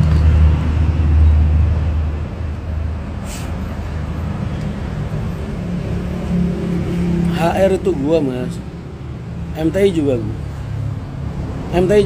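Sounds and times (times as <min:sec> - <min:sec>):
short hiss: 0:03.2 - 0:03.6.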